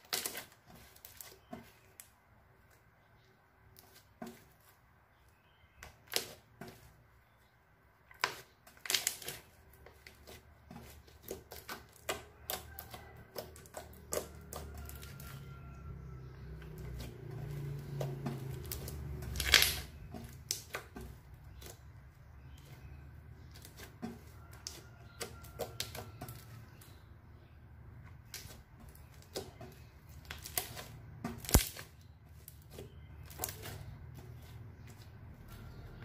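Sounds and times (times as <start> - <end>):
slime clicking and popping: 31.4 - 31.9.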